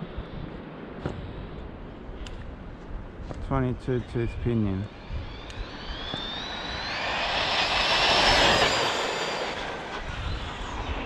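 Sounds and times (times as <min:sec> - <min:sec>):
electric motor whine: 0:04.0 - 0:11.0.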